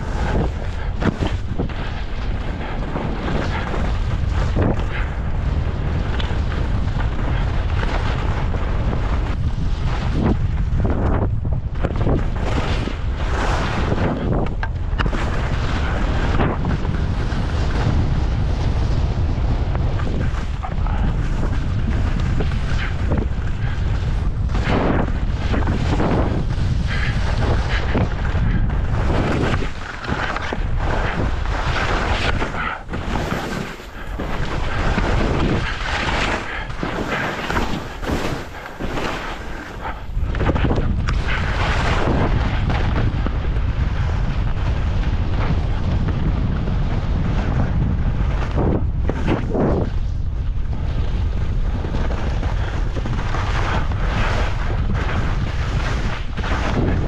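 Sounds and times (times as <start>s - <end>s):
wind buffeting microphone: 0.0s - 57.0s
skis hissing on snow: 29.1s - 40.2s.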